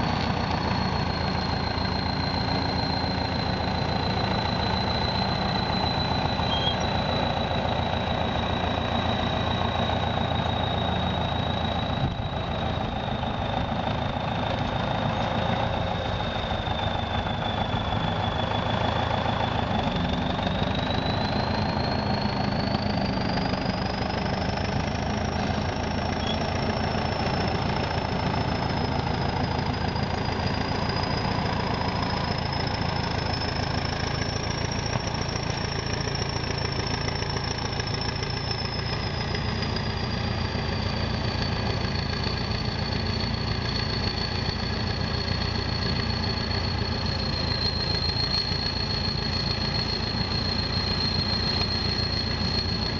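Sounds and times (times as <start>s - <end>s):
bulldozer diesel engine running: 0.0s - 52.9s
high wavering whine: 0.0s - 52.9s.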